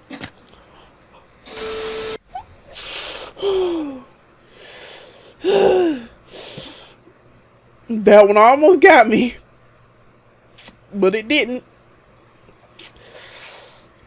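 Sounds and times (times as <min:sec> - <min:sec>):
woman gasping: 0:02.7 - 0:07.0.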